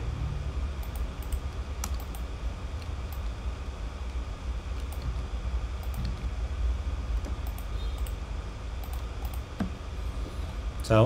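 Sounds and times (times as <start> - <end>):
steady low hum: 0.0 - 11.0
keyboard and mouse clicks: 0.8 - 2.2, 7.2 - 8.2.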